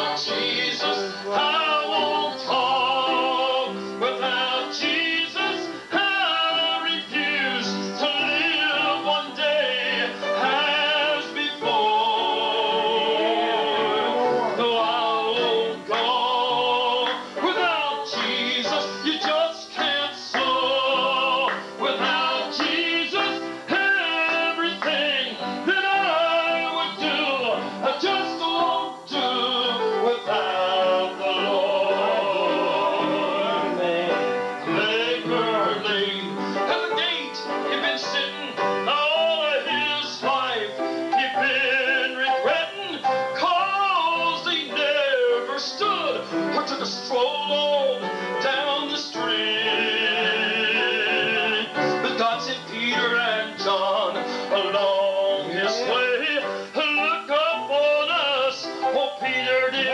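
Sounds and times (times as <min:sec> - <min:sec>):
instrumental accompaniment: 0:00.0 - 0:59.9
man singing into microphone: 0:00.0 - 0:59.9.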